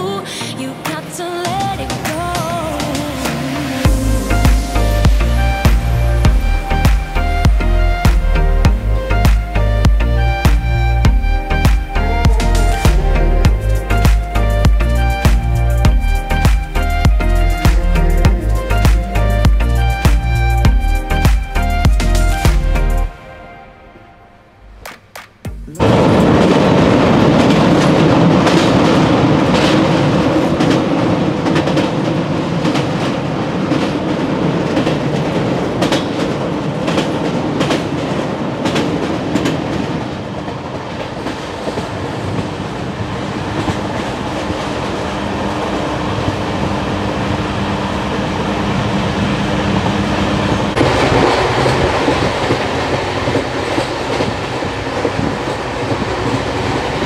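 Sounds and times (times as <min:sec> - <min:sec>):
train rumbling on track: 0:00.0 - 0:23.2, 0:23.8 - 0:57.0
wheels clicking over rail joints: 0:24.8 - 0:46.4.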